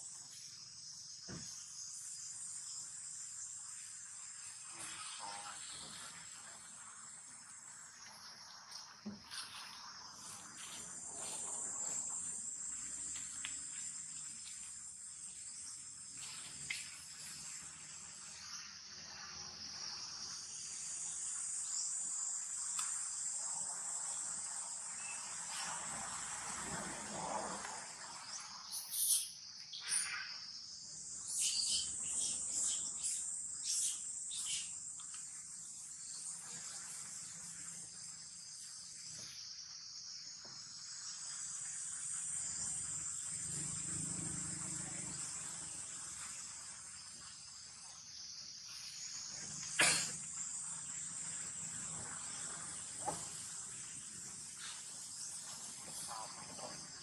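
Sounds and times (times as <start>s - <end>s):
insects chorus: 0.0s - 57.0s
short sharp insect chirps: 27.5s - 51.5s.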